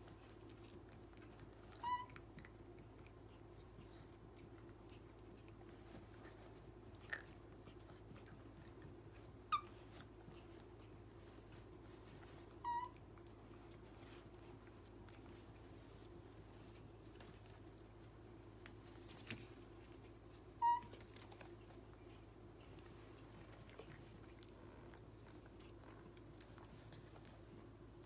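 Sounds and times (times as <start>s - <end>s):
faint steady hum: 0.0s - 28.0s
baby monkeys squeaking: 1.8s - 2.1s, 12.6s - 13.0s, 20.6s - 21.0s.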